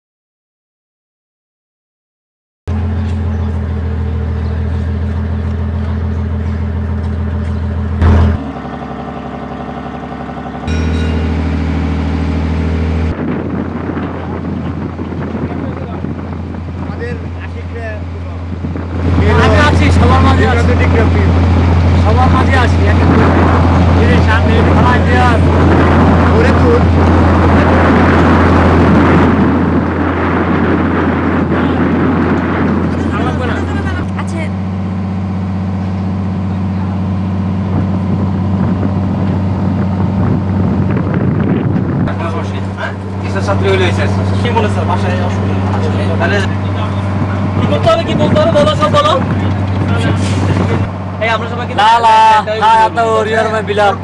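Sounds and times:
boat engine humming: 2.7s - 54.0s
loud rushing noise: 8.0s - 17.3s, 18.4s - 35.5s, 36.8s - 52.9s.

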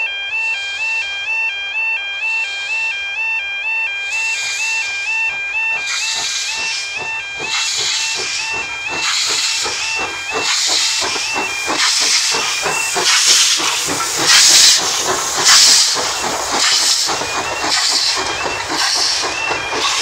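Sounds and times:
steam locomotive exhaust beats: 0.0s - 20.0s
two-tone level crossing alarm: 0.0s - 20.0s
steam hissing from cylinders: 4.1s - 20.0s.

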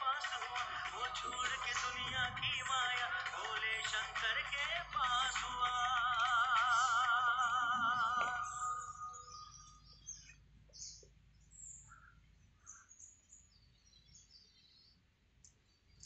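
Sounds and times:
person singing: 0.0s - 9.4s
birds chirping: 0.0s - 16.0s.

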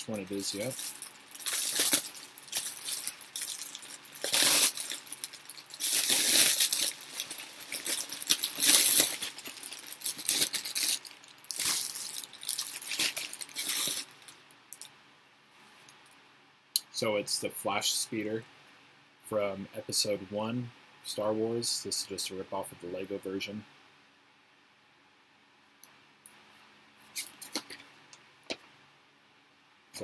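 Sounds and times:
plastic wrapping crinkling: 0.0s - 14.9s, 27.1s - 27.9s.

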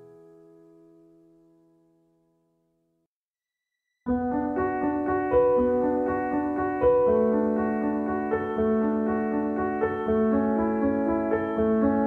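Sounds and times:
keyboard chords: 4.1s - 12.0s.

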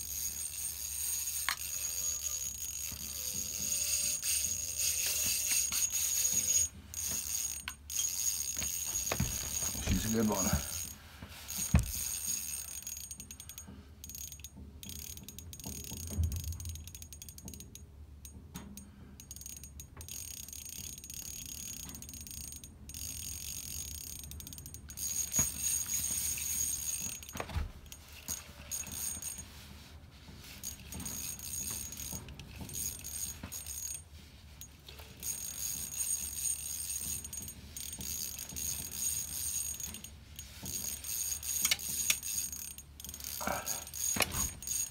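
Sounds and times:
fishing reel drag clicking: 0.0s - 16.0s, 19.2s - 27.3s, 30.6s - 34.0s, 35.2s - 44.9s
thin high whine: 0.3s - 6.8s.

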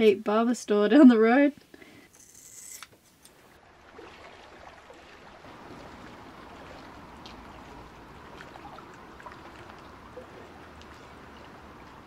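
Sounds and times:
water lapping around boat: 3.4s - 12.0s.

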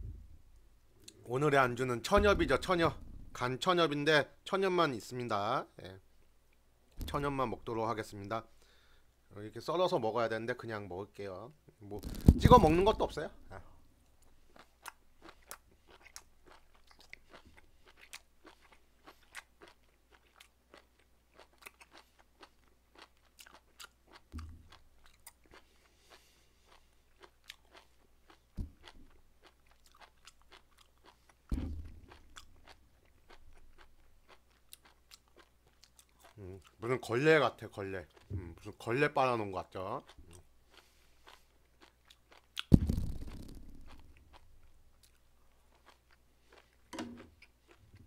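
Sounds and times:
low thumps: 0.0s - 0.7s, 2.1s - 3.6s, 12.0s - 13.5s, 31.5s - 32.6s, 42.7s - 44.7s
chewing clicks: 14.2s - 31.3s, 32.0s - 36.8s.

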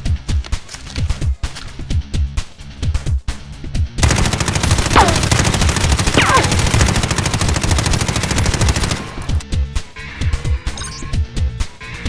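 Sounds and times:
rapid automatic gunfire: 4.0s - 9.4s.

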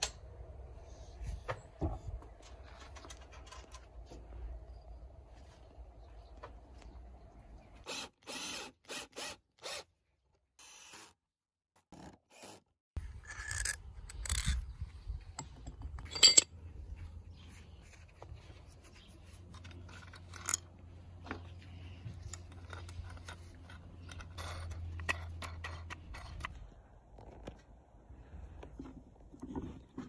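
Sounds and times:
wood and metal parts scraping: 1.6s - 4.3s, 13.0s - 26.7s.

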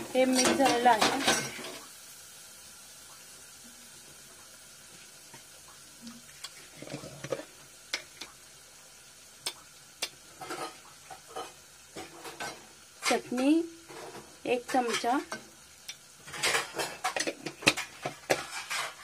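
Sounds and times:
paste sizzling in oil: 0.0s - 19.0s
sharp pops and crackles: 5.3s - 8.4s, 9.4s - 13.4s, 14.7s - 18.9s.

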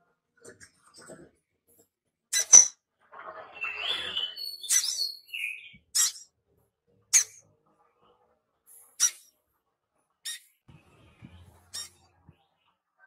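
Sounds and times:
bird high sharp chirps: 2.3s - 2.8s, 3.6s - 6.3s, 7.2s - 7.4s, 10.2s - 10.6s, 11.7s - 12.0s
bird scratchy chattering: 3.7s - 5.2s, 11.6s - 12.0s.

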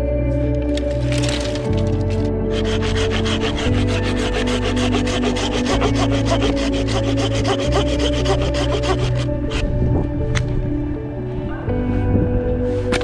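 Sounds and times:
hand saw cutting wood: 2.5s - 9.6s.

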